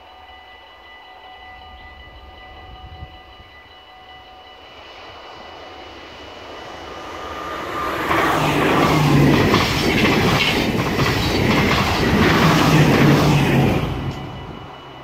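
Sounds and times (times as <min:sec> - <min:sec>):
electric train passing: 0:00.0 - 0:15.0
wheels running on rails: 0:06.7 - 0:15.0.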